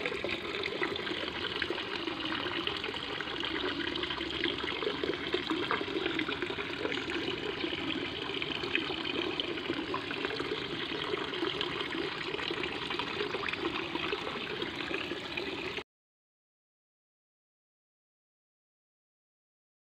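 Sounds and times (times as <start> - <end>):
stream babbling over stones: 0.0 - 15.8.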